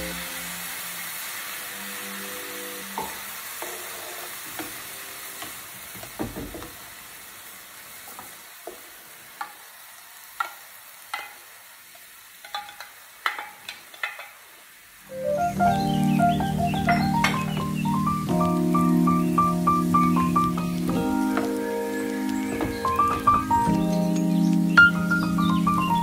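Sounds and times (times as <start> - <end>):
background music: 0.0 - 3.6, 15.1 - 26.0
vegetables sizzling in a frying pan: 0.0 - 26.0.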